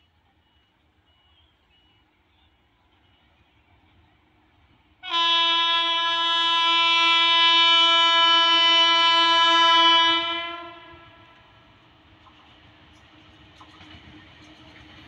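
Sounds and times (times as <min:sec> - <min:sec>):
train horn long blast: 0:05.0 - 0:11.6.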